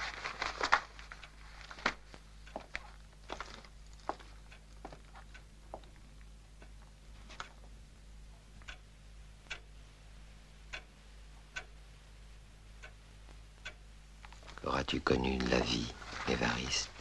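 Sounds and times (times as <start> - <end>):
steady low hum: 0.0 - 17.0
clock ticking: 4.1 - 9.8, 10.6 - 11.9, 12.6 - 16.9.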